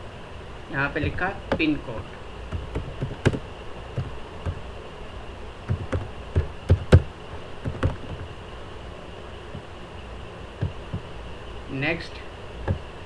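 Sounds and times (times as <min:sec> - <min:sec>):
keyboard keystrokes clicking: 0:02.5 - 0:03.4, 0:05.7 - 0:07.0, 0:07.6 - 0:08.2.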